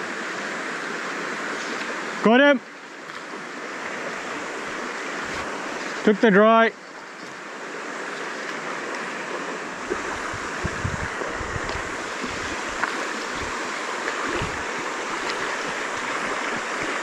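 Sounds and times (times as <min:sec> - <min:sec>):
stream running over stones: 0:00.0 - 0:17.0
microphone bumps: 0:09.8 - 0:13.6, 0:14.2 - 0:14.7.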